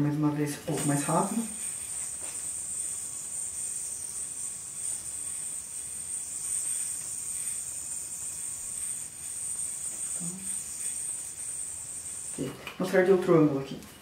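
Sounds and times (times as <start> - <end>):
yoyo whirring hiss: 0.6 - 14.0.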